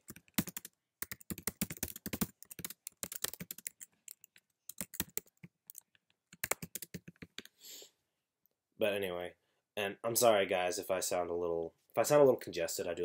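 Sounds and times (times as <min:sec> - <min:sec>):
computer keyboard typing: 0:00.0 - 0:07.5.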